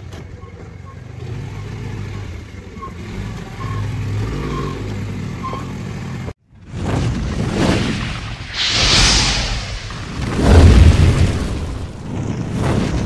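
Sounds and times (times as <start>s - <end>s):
rising whoosh: 8.2s - 12.2s.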